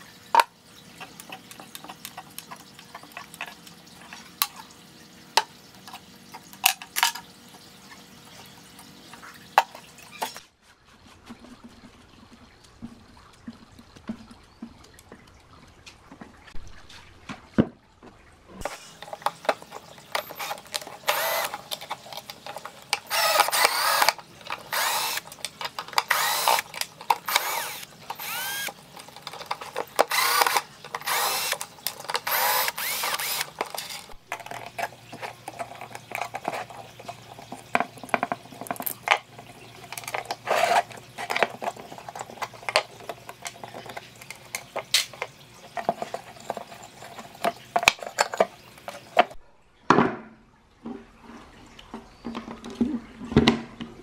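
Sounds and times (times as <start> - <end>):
power tool scraping metal: 18.6 - 28.8, 29.4 - 34.2.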